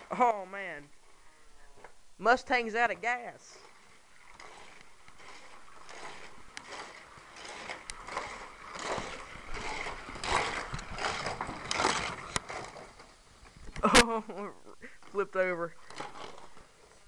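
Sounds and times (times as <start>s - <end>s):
toy race car rattling on track: 4.2s - 13.2s, 15.5s - 16.6s.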